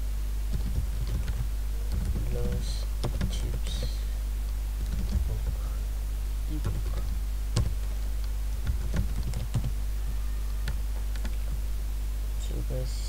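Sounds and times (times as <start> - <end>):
steady low hum: 0.0 - 13.0
keyboard keys clicking: 0.5 - 3.9, 4.8 - 5.6, 6.6 - 9.8.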